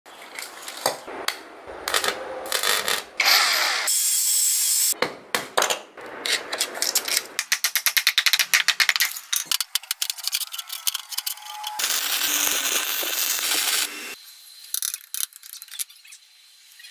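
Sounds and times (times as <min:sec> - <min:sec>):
power tool: 0:01.9 - 0:04.9, 0:11.4 - 0:14.2.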